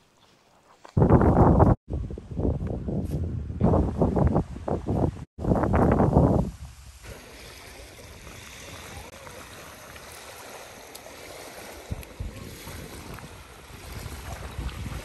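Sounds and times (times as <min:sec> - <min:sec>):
wind rumble on microphone: 0:01.0 - 0:10.3, 0:11.4 - 0:15.0
lake waves lapping on pebbles: 0:07.0 - 0:15.0.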